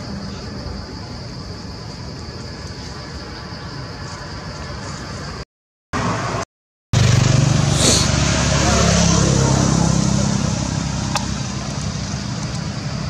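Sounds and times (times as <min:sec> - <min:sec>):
vehicle engine running: 0:07.0 - 0:13.0.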